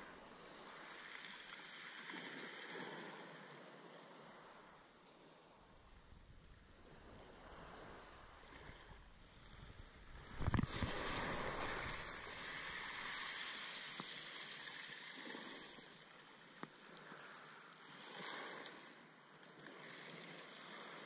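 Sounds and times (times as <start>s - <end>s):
fishing reel whirring: 10.2s - 21.0s.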